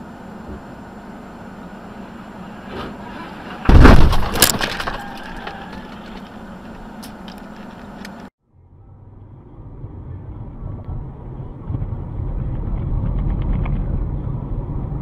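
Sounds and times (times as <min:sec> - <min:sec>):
road noise of moving car: 0:00.0 - 0:15.0
car collision with breaking glass: 0:03.5 - 0:05.9.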